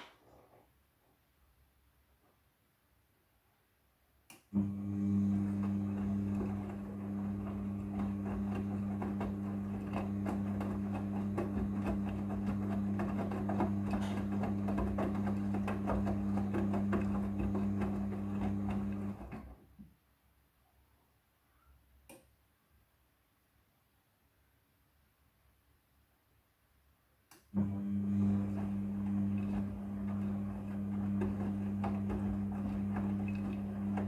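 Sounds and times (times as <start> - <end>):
washing machine motor humming: 4.5 - 19.6, 27.6 - 34.0.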